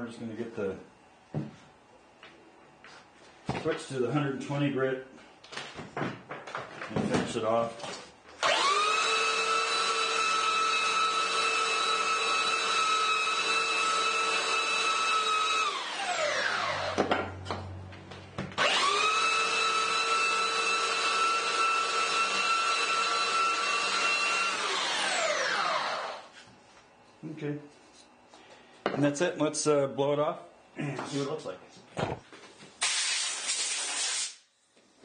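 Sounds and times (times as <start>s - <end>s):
electric sander running: 8.4s - 17.3s, 18.6s - 26.3s
sander motor winding down: 8.4s - 17.8s, 18.6s - 26.3s.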